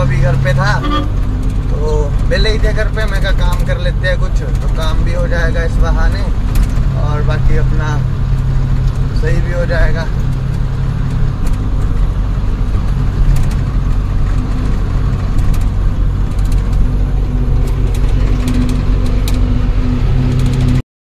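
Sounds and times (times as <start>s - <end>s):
truck diesel engine running: 0.0s - 20.8s.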